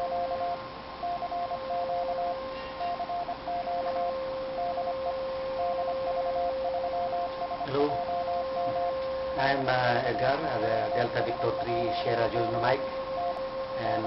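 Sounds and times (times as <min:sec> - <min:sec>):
morse code beeps: 0:00.0 - 0:14.0
radio static hiss: 0:07.4 - 0:08.1, 0:08.9 - 0:14.0.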